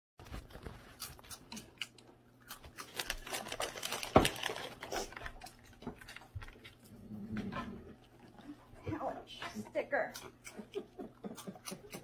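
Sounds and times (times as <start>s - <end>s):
plastic bag crinkling: 2.8s - 6.3s.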